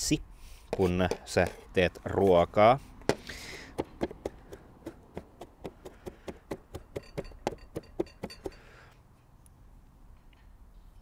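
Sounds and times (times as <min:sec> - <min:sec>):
knife chopping on plastic board: 0:03.1 - 0:08.0.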